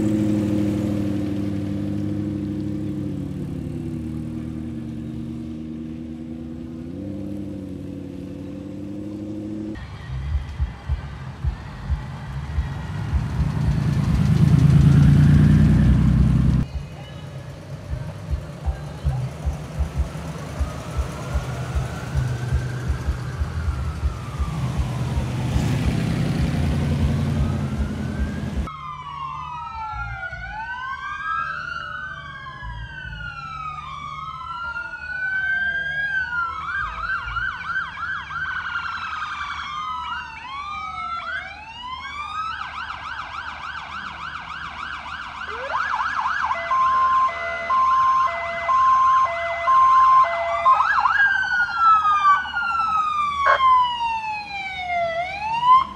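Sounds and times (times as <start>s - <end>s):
car engine running: 0.0s - 28.7s
sirens wailing: 0.0s - 55.9s
siren yelp: 18.6s - 55.9s.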